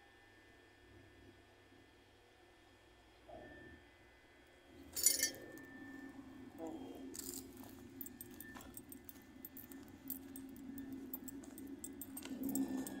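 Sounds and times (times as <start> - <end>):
steady low hum: 4.6 - 13.0
keys jingling: 4.9 - 5.6, 7.1 - 13.0.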